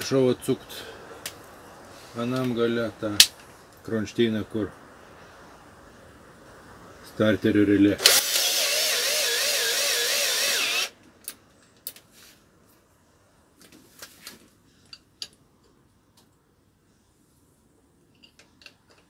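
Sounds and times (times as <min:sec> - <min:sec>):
cordless drill whining: 0:08.0 - 0:11.0.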